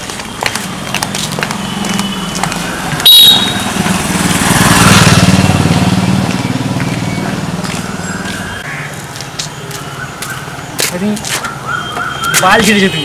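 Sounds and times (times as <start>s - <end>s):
motorcycle engine running: 0.7s - 8.5s.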